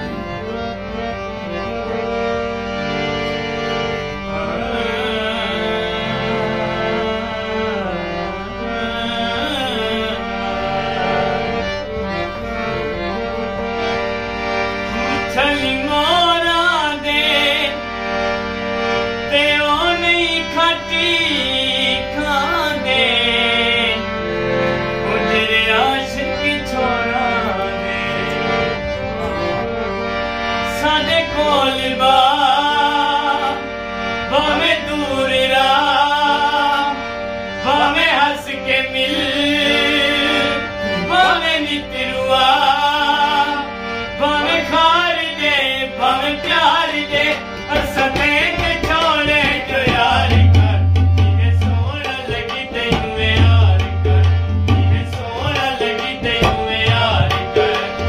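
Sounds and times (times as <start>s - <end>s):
harmonium chords: 0.0s - 58.0s
man singing ornamented phrases: 37.6s - 54.2s
tabla drums: 46.4s - 58.0s.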